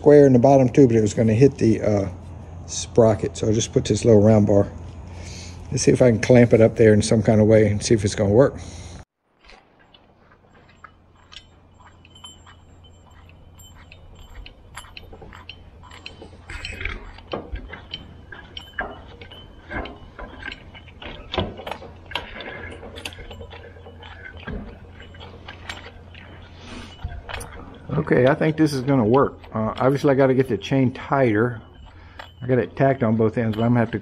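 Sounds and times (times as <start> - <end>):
steady low hum: 0.0 - 34.0
chain rattling over sprocket: 9.5 - 34.0.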